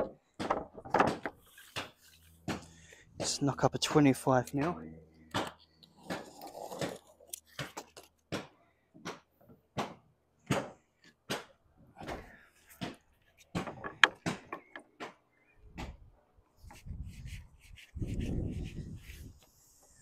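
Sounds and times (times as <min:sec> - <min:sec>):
wooden knocks on sheet lead: 0:12.8 - 0:15.1.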